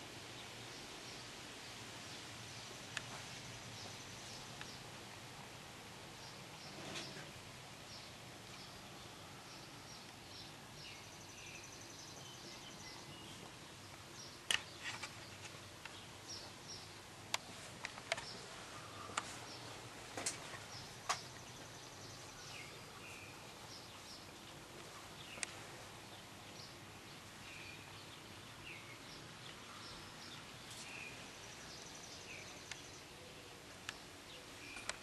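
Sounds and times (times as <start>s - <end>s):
birds chirping faintly: 0.0s - 35.0s.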